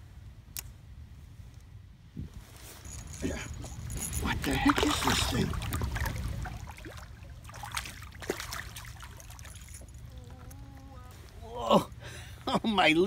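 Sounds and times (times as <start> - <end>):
fish splashing at water surface: 4.4 - 10.0.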